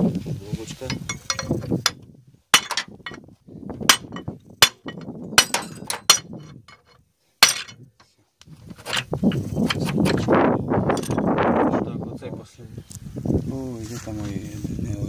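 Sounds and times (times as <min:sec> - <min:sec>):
metal parts clattering: 0:00.9 - 0:02.0, 0:02.6 - 0:03.2, 0:03.9 - 0:07.9, 0:08.7 - 0:10.2, 0:10.9 - 0:11.2
hammer striking metal: 0:02.6 - 0:03.2, 0:03.9 - 0:06.5, 0:07.4 - 0:07.8.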